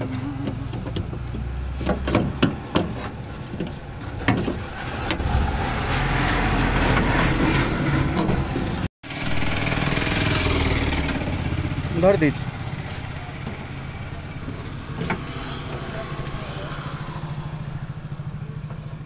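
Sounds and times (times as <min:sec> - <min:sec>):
steady engine drone: 0:00.0 - 0:01.7, 0:04.9 - 0:19.0.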